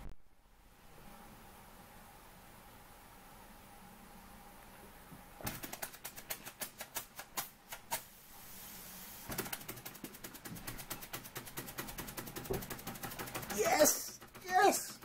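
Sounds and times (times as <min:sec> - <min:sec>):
steam hiss: 0:07.4 - 0:09.6
toy steam engine ticking: 0:09.8 - 0:15.0.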